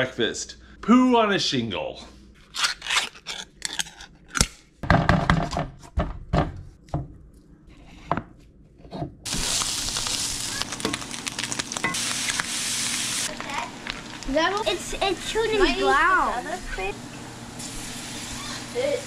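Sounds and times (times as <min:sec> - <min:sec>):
meat sizzling in skillet: 0:09.3 - 0:19.0.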